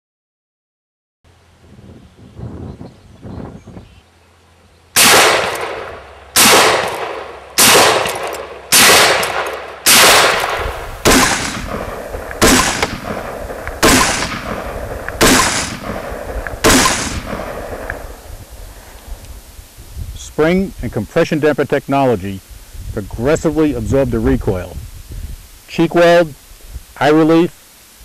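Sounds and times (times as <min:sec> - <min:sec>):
rifle shots: 0:05.0 - 0:18.2.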